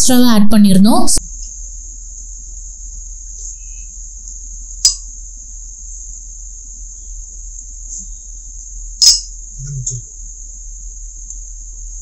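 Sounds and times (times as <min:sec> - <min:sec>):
spoon clinking against bowl: 0:09.0 - 0:09.3.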